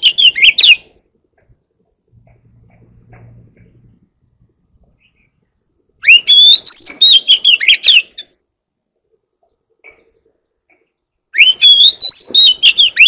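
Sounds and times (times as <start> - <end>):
bird singing whistles and warbles: 0.0 - 0.9, 6.0 - 8.3, 11.3 - 13.0.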